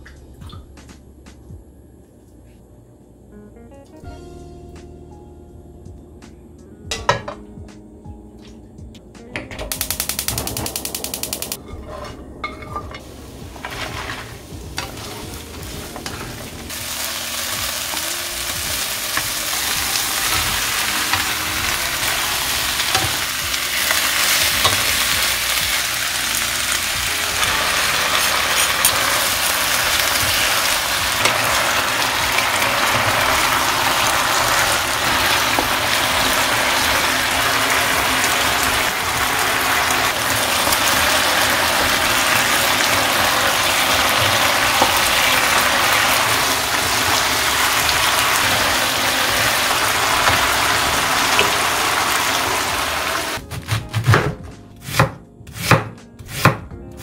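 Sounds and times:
vegetables sizzling in oil: 0:12.5 - 0:53.4.

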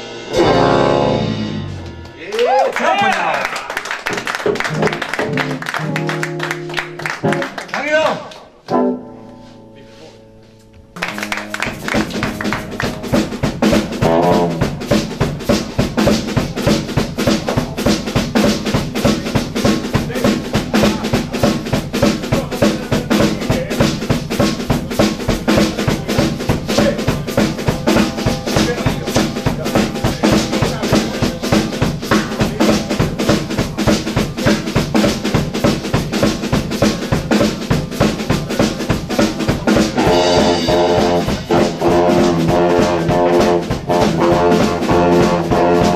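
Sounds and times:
drum kit beat: 0:00.0 - 0:10.2, 0:10.8 - 0:45.9
live swing band: 0:00.0 - 0:45.9
saxophone: 0:00.3 - 0:01.9, 0:12.4 - 0:15.2, 0:40.0 - 0:45.9.

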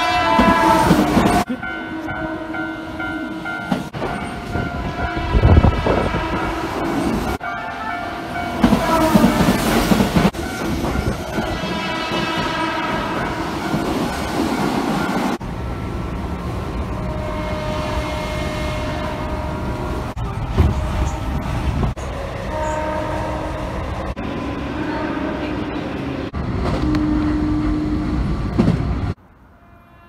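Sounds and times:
electric train horn: 0:00.0 - 0:03.4, 0:04.5 - 0:09.8, 0:11.0 - 0:13.6, 0:16.9 - 0:28.2, 0:29.5 - 0:30.0
train running rumble: 0:08.3 - 0:29.2.

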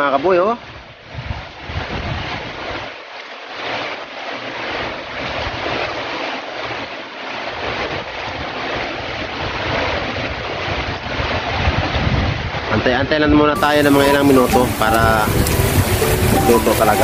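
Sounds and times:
wind buffeting microphone: 0:00.7 - 0:02.8, 0:09.4 - 0:12.7, 0:13.6 - 0:17.0.

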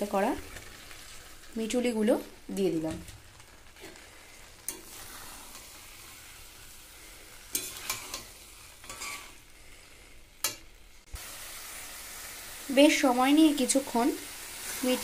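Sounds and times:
vegetables sizzling in hot oil: 0:00.0 - 0:15.0
metal spatula scraping pan: 0:04.6 - 0:09.5.

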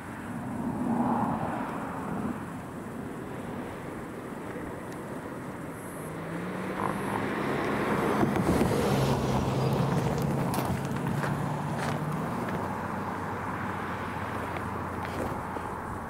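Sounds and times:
vehicle driving past: 0:06.0 - 0:16.0.

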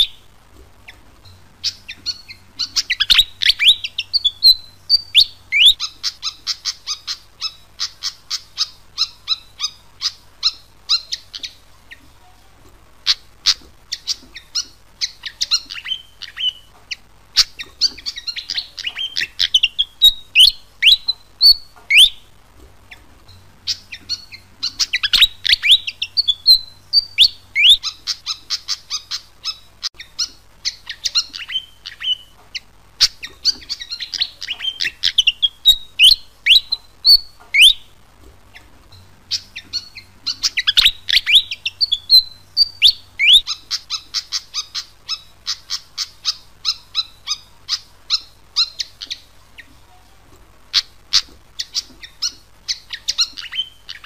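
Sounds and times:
songbird singing squeaky high notes: 0:01.6 - 0:11.6, 0:13.1 - 0:22.3, 0:23.7 - 0:32.3, 0:33.0 - 0:37.9, 0:39.3 - 0:49.3.

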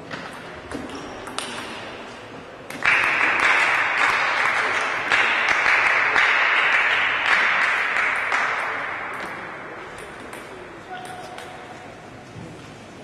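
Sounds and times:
table tennis ball hits: 0:00.1 - 0:02.1, 0:02.7 - 0:11.6
crowd applause: 0:02.8 - 0:08.8.

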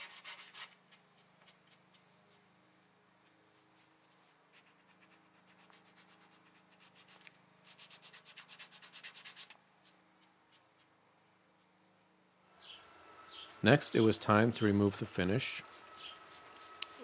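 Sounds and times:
sanding disc rubbing wood: 0:15.5 - 0:17.0.

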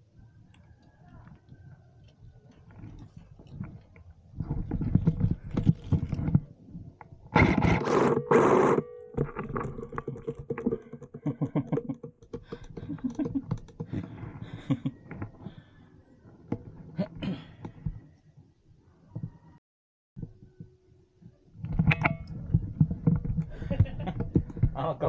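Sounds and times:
gear scraping and clicking: 0:00.5 - 0:14.4.

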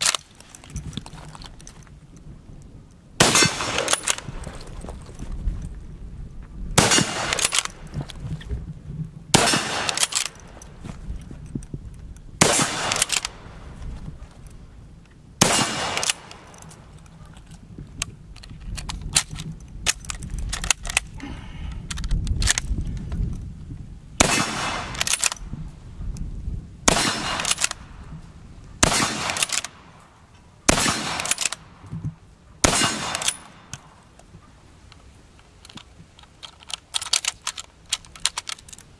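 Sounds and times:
rifle handling noises: 0:00.0 - 0:05.8, 0:06.8 - 0:08.6, 0:09.4 - 0:23.5, 0:24.2 - 0:25.5, 0:26.9 - 0:27.8, 0:28.8 - 0:38.9
rifle shots with echo: 0:03.2 - 0:04.6, 0:06.8 - 0:07.9, 0:09.3 - 0:10.6, 0:12.4 - 0:13.6, 0:15.4 - 0:16.6, 0:24.2 - 0:25.4, 0:26.9 - 0:27.9, 0:28.8 - 0:29.9, 0:30.7 - 0:31.8, 0:32.6 - 0:33.7.

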